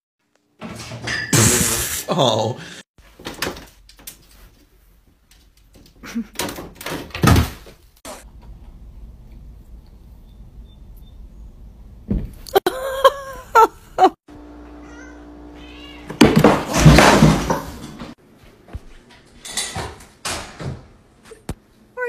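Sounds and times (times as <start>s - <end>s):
cat meowing: 14.8s - 16.2s.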